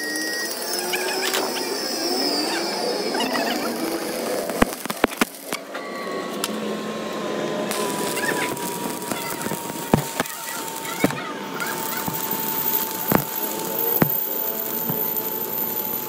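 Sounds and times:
thin steady whine: 0.0s - 16.0s
arc welding crackle and pops: 3.2s - 5.7s, 7.7s - 16.0s.

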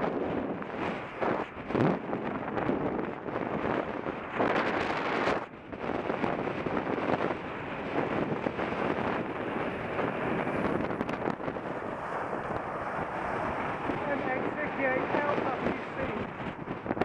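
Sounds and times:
wind rushing over microphone: 0.0s - 17.0s
road traffic noise: 7.4s - 17.0s.

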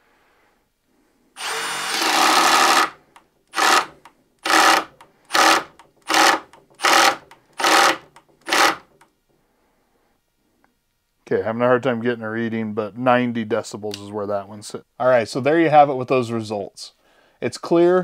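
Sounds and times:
impact driver driving screw into wood: 1.4s - 9.0s.

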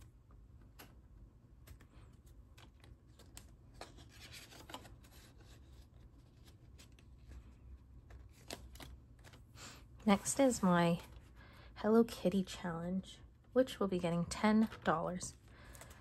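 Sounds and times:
card and binder pages rustling: 1.6s - 11.3s.

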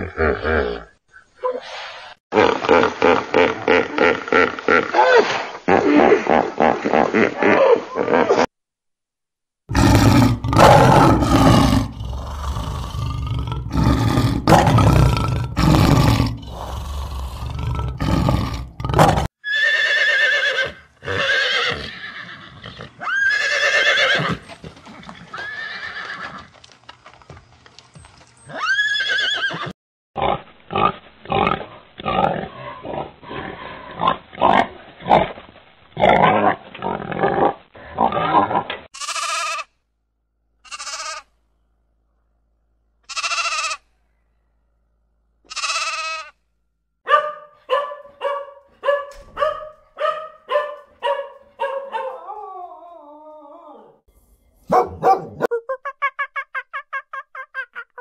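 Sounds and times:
lion roaring: 9.7s - 19.3s
pig grunting: 9.7s - 19.3s, 30.2s - 35.4s, 36.0s - 38.8s
horses neighing: 9.7s - 26.5s, 28.4s - 29.7s.

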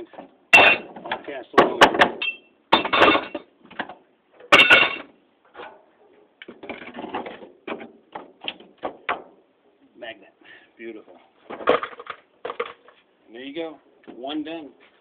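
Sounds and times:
metal parts clanking into bin: 0.6s - 3.5s, 4.4s - 5.8s.

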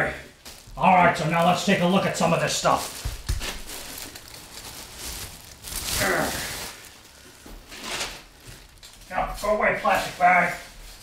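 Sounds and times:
plastic bags crinkling: 0.3s - 11.0s
breathy voice sound: 5.8s - 6.8s.

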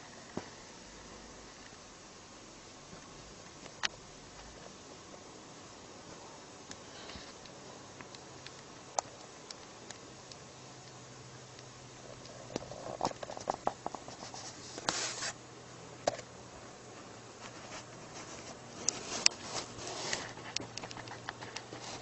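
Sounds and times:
faint low hum: 0.0s - 22.0s
small clicks and rustles: 6.6s - 15.4s, 16.9s - 22.0s.

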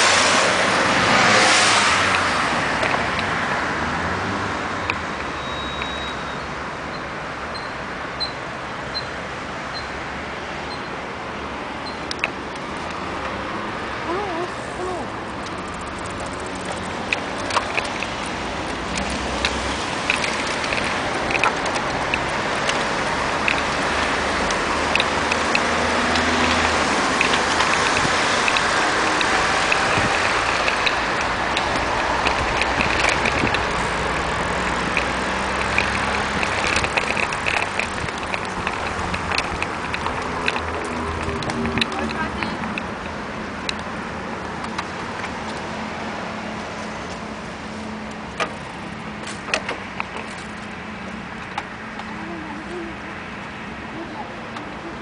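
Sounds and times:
bicycle rolling noise: 0.0s - 6.1s, 10.7s - 53.8s
passing cars: 0.0s - 55.0s
wind rushing over microphone: 14.6s - 43.9s.

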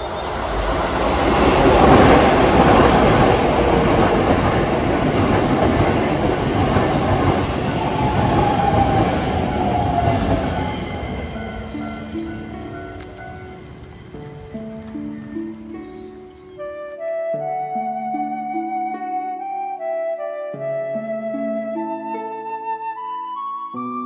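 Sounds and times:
falling whine: 0.0s - 15.8s
train wheels rolling: 0.0s - 16.6s.

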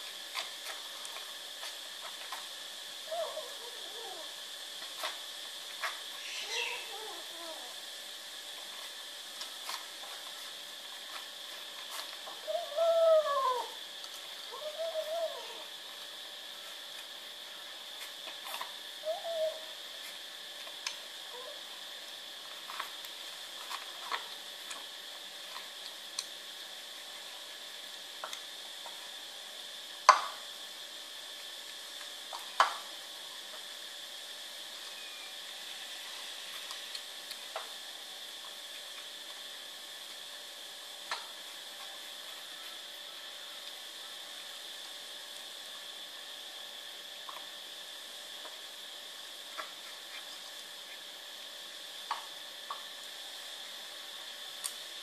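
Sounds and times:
faint high hiss: 0.0s - 18.2s, 34.7s - 37.0s.

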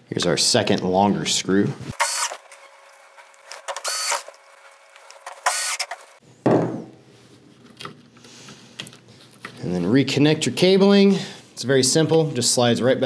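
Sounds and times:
cordless drill whirring: 1.9s - 6.2s
thump: 6.4s - 6.9s.

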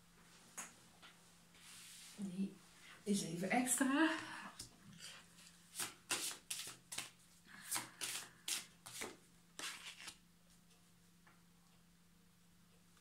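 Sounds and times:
cards being shuffled by hand: 5.4s - 10.2s.

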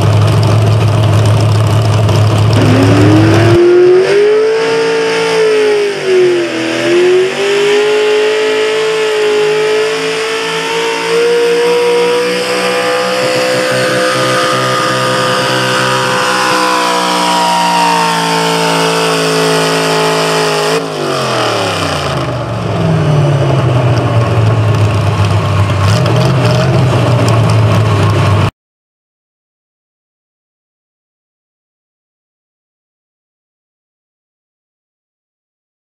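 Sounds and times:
tractor engine at full throttle: 0.0s - 28.5s.

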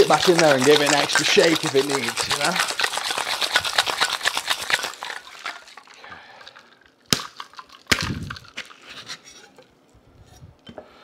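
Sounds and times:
shaker knocks: 0.0s - 2.8s
ice rattling in cocktail shaker: 0.0s - 8.8s.

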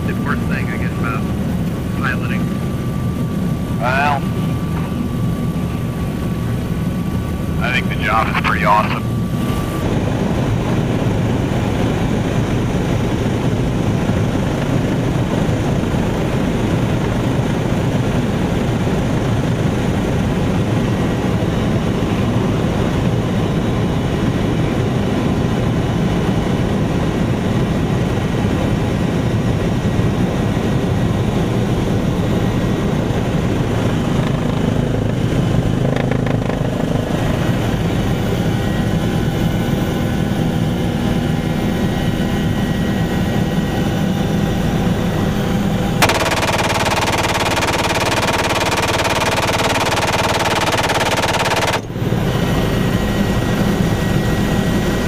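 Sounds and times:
helicopter rotor and turbine engine: 0.0s - 55.0s.

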